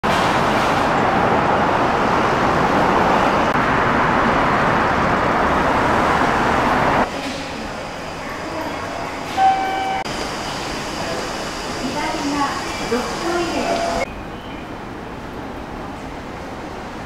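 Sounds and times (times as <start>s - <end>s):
station ambience: 0.0s - 17.0s
electric train running on track: 0.4s - 14.1s.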